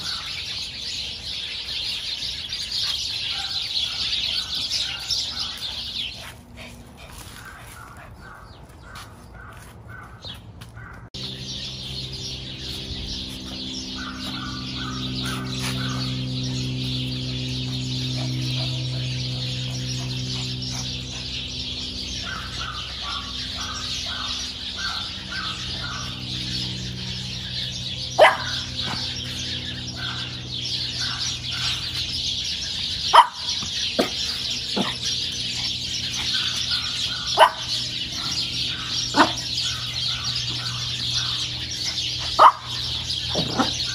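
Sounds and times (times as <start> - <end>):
birds chirping: 0.0 - 43.9
steady low hum: 0.0 - 43.9.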